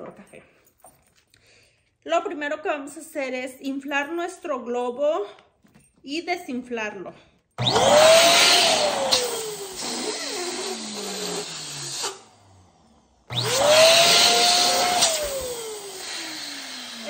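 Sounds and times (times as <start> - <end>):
electric balloon pump whining: 7.6 - 17.0.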